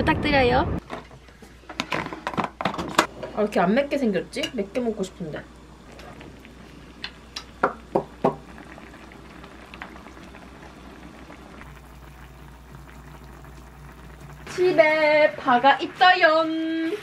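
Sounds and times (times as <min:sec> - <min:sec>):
stew bubbling in a pot: 0:03.0 - 0:17.0.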